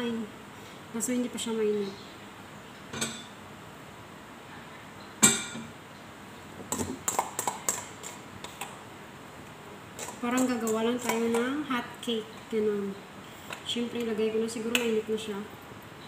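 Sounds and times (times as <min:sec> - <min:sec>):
metal kitchenware clinking: 0:02.9 - 0:03.4, 0:05.2 - 0:05.7.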